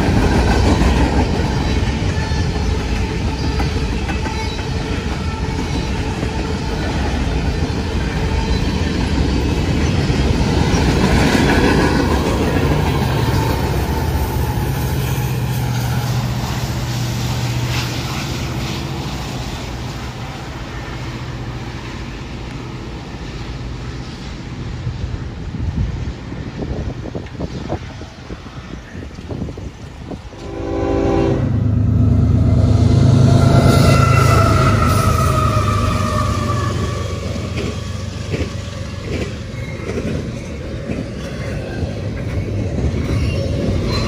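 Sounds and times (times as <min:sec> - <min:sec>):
train wheel clatter: 0:00.0 - 0:20.8, 0:33.5 - 0:44.0
diesel locomotive engine drone: 0:00.0 - 0:44.0.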